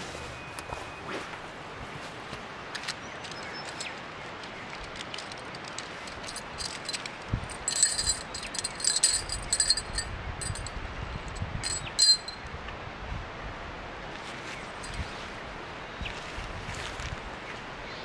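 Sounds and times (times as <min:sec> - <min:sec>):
light rustling: 0:02.0 - 0:10.7, 0:11.3 - 0:12.4
metal tent poles clinking: 0:02.7 - 0:10.7, 0:11.3 - 0:12.4.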